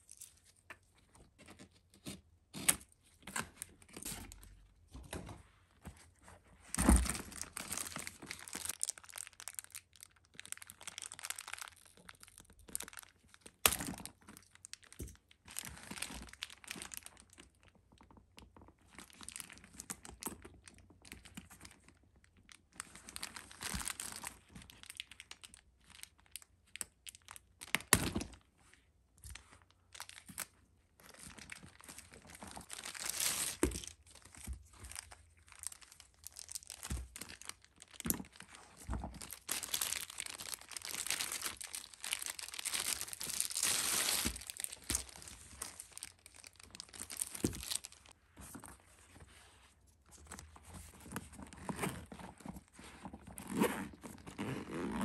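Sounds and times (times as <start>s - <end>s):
plastic wrapping crinkling: 6.7s - 18.1s, 18.9s - 27.9s, 31.1s - 49.2s.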